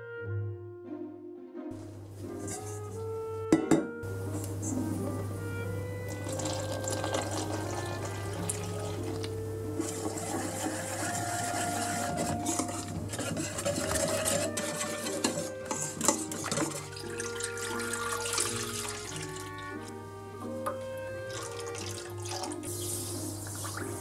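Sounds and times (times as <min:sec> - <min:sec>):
light background music: 0:00.0 - 0:24.0
liquid sloshing: 0:01.8 - 0:03.3, 0:04.2 - 0:20.0, 0:20.6 - 0:24.0
whisk scraping metal bowl: 0:02.2 - 0:05.1, 0:06.0 - 0:19.9
milk pouring into pot: 0:05.4 - 0:20.0, 0:20.6 - 0:24.0.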